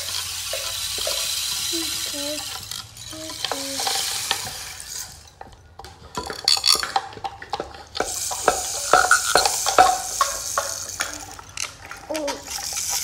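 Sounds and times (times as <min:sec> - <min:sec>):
scattered clicks and taps: 0:00.0 - 0:13.0.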